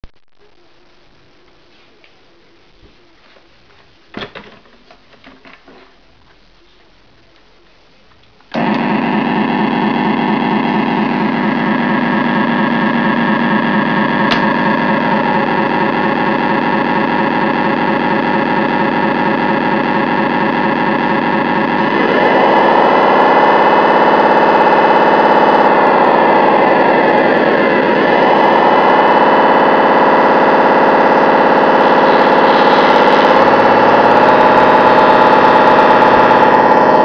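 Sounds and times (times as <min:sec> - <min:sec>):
simulated diesel engine chugging: 0:08.6 - 0:37.0.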